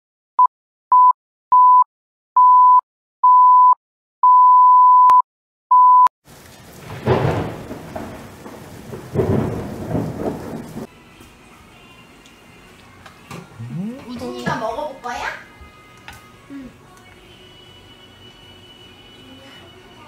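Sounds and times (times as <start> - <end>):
rain hiss: 6.3 - 10.9
thunder rolling: 6.6 - 10.9
countdown beeps: 13.6 - 14.3.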